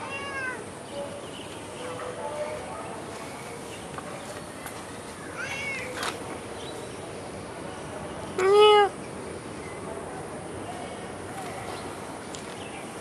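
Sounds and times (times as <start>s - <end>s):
cat meowing: 0.0s - 0.6s, 5.4s - 6.0s, 8.4s - 8.9s
faint high cat call: 0.0s - 0.6s, 5.3s - 6.0s.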